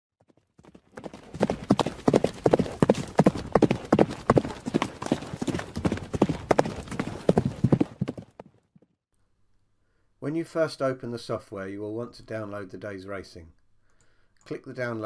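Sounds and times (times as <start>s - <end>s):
horse galloping hoofbeats: 0.2s - 9.0s.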